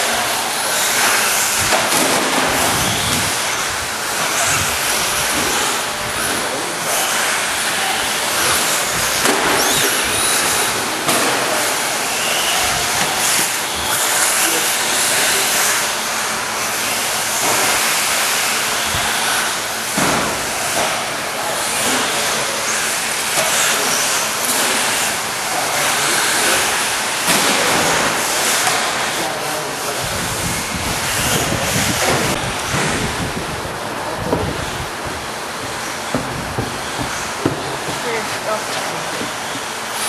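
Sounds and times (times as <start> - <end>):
radio-controlled car motors whining: 2.5 - 20.0, 20.6 - 33.3
steady wash of noise: 27.9 - 40.0.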